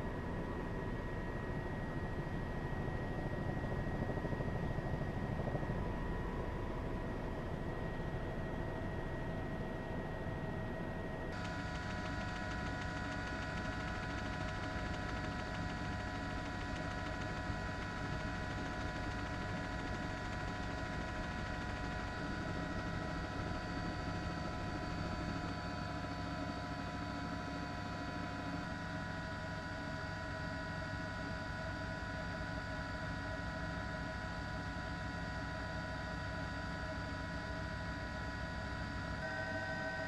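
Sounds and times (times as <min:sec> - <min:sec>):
turbine whine: 0:00.0 - 0:30.4, 0:35.9 - 0:40.0
helicopter cabin noise: 0:00.2 - 0:07.5, 0:11.0 - 0:29.8.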